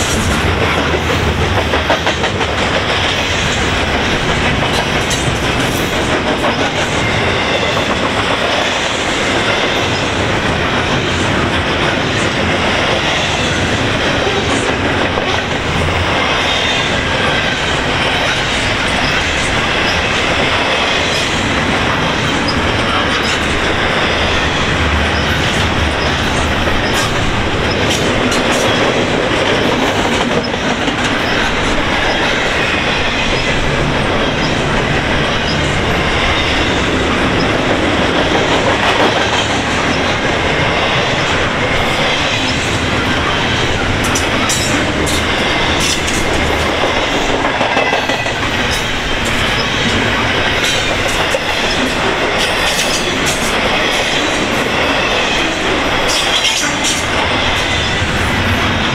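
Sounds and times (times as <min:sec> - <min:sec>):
train wheels rumbling on rail: 0:00.0 - 0:58.9.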